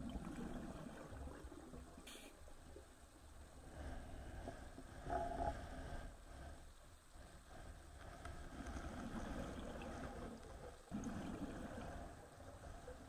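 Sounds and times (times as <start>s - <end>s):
underwater low rumble: 0.0s - 13.0s
faint clicks: 7.9s - 9.0s.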